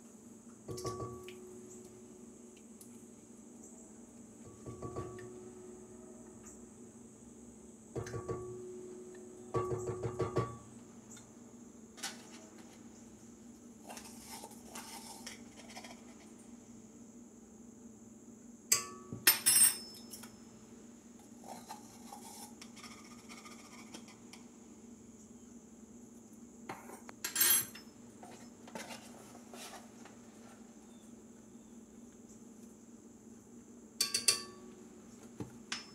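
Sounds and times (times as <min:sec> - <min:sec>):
utensils clinking on metal bowl: 0:18.8 - 0:20.3, 0:27.2 - 0:27.9, 0:34.0 - 0:34.6.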